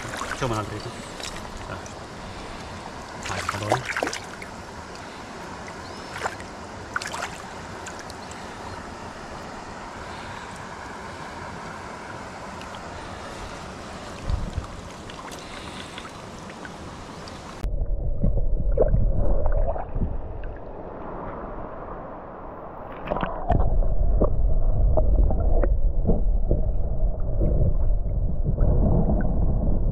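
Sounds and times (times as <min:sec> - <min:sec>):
small knocks and splashes: 0:00.0 - 0:02.0, 0:03.1 - 0:05.1, 0:06.1 - 0:08.4
river water running over stones: 0:00.0 - 0:17.6
muffled underwater sloshing: 0:00.0 - 0:29.9.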